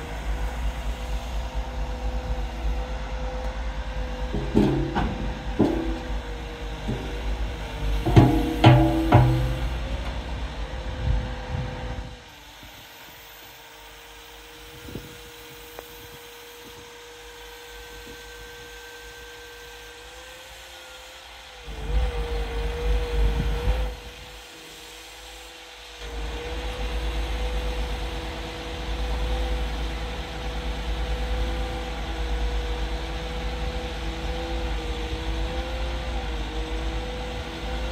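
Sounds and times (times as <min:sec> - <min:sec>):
excavator whine: 0:00.0 - 0:37.9
metallic clanks: 0:04.4 - 0:09.9.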